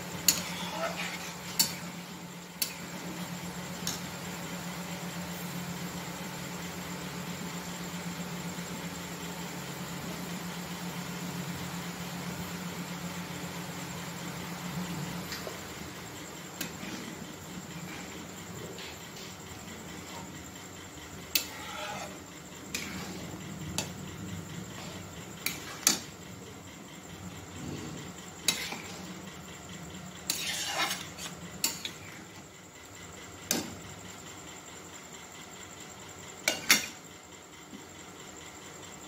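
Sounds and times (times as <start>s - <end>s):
metal spatula scraping steel pan: 0.2s - 1.8s, 21.3s - 24.0s, 24.7s - 26.1s, 28.4s - 29.1s, 30.2s - 32.2s.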